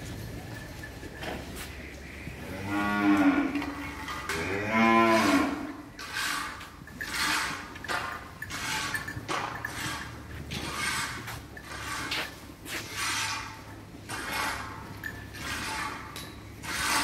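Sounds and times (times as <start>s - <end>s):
cow mooing: 2.4s - 5.8s.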